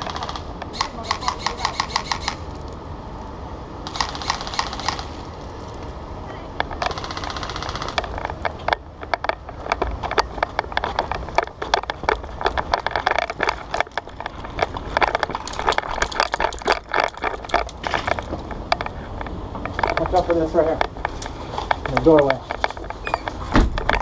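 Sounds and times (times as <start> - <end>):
airsoft shots and clicks: 0.0 - 2.4, 3.8 - 5.2, 6.7 - 8.5
gear rattling: 0.0 - 2.8, 6.6 - 24.0.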